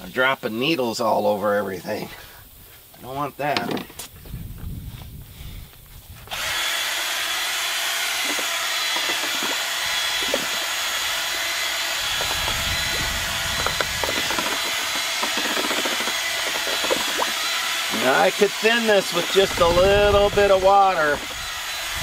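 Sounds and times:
cordless drill mixing paint: 6.2s - 22.0s.

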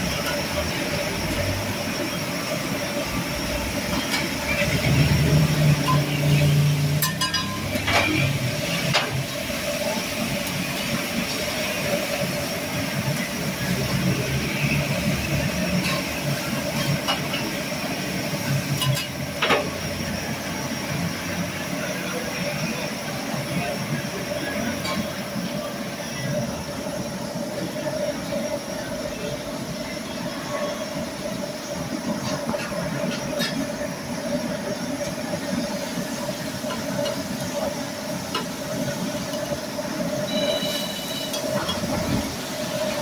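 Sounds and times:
vehicle engine hum: 0.0s - 10.5s
street noise: 0.0s - 43.0s.

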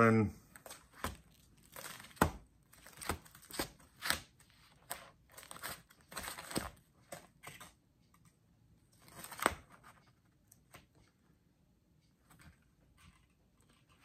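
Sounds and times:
plastic binder pages rustling: 0.5s - 7.8s, 9.0s - 11.1s.

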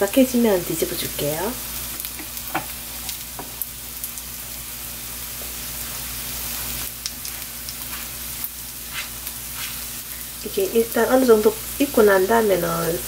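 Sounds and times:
food sizzling in oil: 0.0s - 13.0s
oil popping and crackling: 1.7s - 4.6s, 5.3s - 11.1s.

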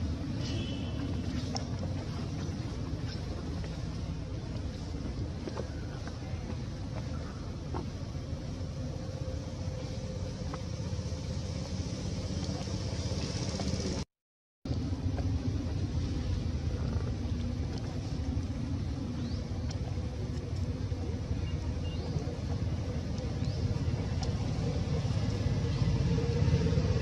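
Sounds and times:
low rumbling background noise: 0.0s - 14.1s, 14.7s - 27.0s.

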